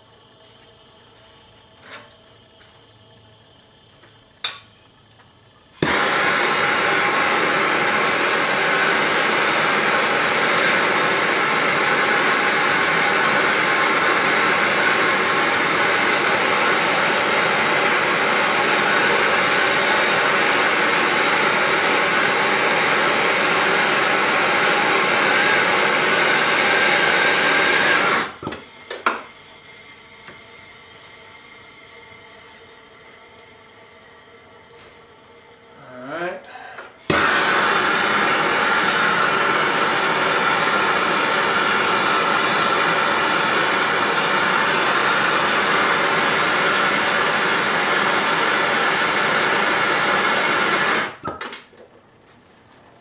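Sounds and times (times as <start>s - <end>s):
gas torch hissing: 0.0s - 51.4s
torch click: 4.0s - 6.2s, 37.0s - 37.5s
torch igniting pop: 5.8s - 16.2s, 37.0s - 43.4s.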